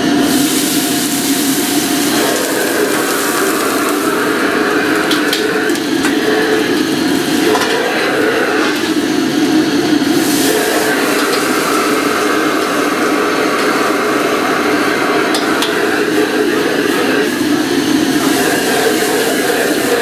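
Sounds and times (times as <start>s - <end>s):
gas burners rushing: 0.0s - 20.0s
wok and ladle clanking: 0.5s - 9.0s, 10.1s - 16.2s.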